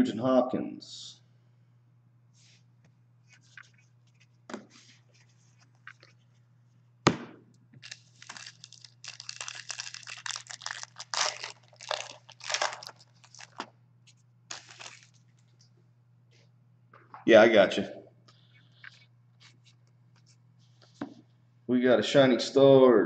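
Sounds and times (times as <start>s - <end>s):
foil wrappers tearing and crinkling: 7.8s - 13.7s, 14.5s - 15.2s.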